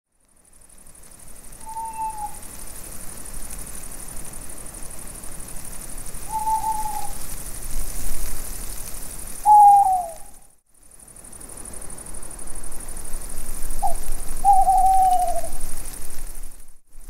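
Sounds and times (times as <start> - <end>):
steady hiss: 0.2 - 17.0
owl hooting: 1.6 - 2.4, 6.2 - 7.2, 9.4 - 10.4, 13.8 - 15.6.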